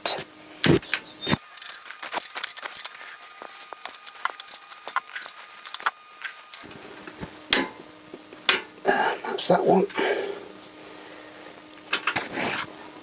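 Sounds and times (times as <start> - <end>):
ratchet wrench clicking: 1.4 - 6.6.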